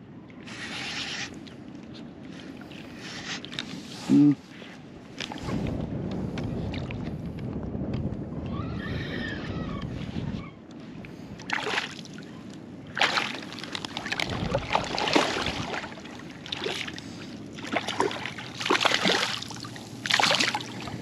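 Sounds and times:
fish thrashing and splashing water: 11.5 - 12.2, 12.9 - 21.0.

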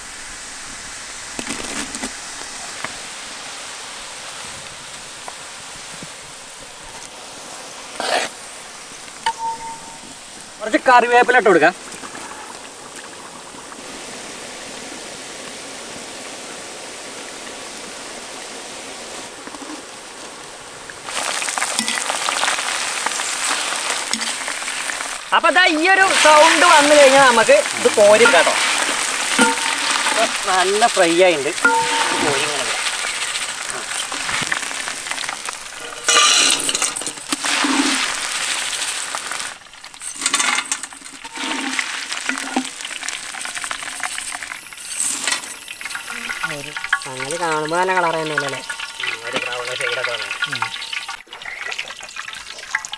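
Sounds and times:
deep-frying sizzle in oil: 0.0 - 52.9
fried chips rattling on metal: 21.1 - 51.2
ladle scraping metal bowl: 28.1 - 30.4, 31.6 - 33.2, 35.8 - 38.2, 40.1 - 42.7.

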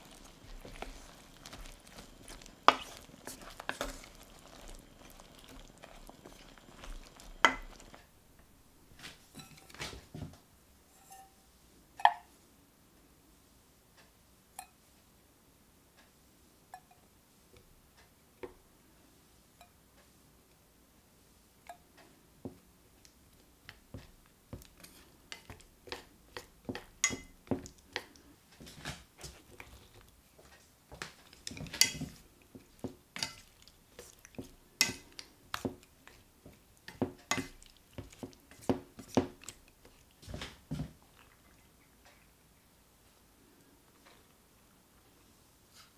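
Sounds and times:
utensils clinking on a steel pan: 31.5 - 32.2.

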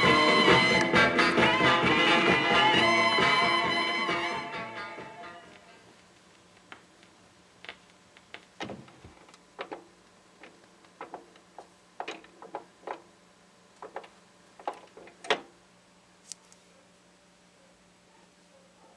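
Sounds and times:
faint steady hum: 0.0 - 18.9
turntable clicks and knocks: 6.2 - 13.1, 13.8 - 15.5.

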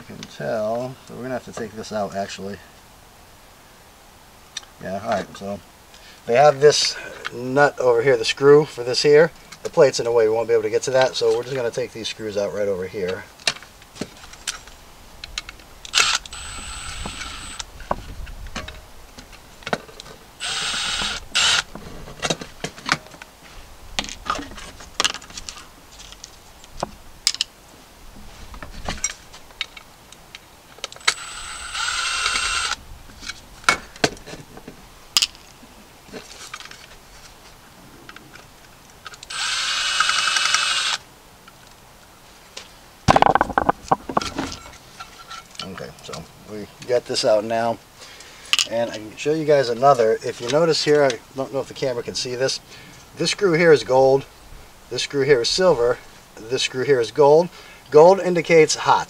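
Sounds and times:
power drill whining: 15.9 - 17.7, 20.4 - 21.7, 31.0 - 32.8, 39.3 - 41.0
metal parts clicking and knocking: 43.1 - 44.6.

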